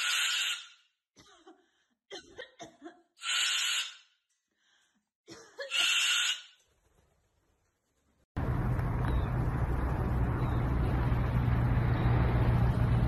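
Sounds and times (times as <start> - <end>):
cockatoo harsh coughing calls: 0.0 - 4.1, 5.3 - 6.5.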